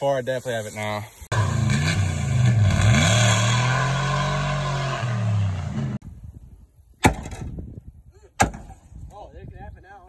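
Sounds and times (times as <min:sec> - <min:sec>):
pickup engine revving: 0:01.3 - 0:06.0.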